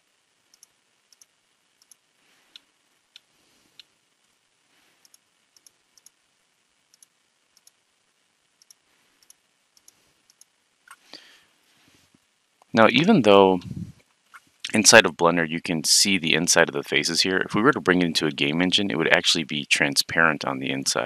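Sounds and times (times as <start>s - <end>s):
computer mouse clicking: 0.5s - 3.9s, 8.6s - 11.0s.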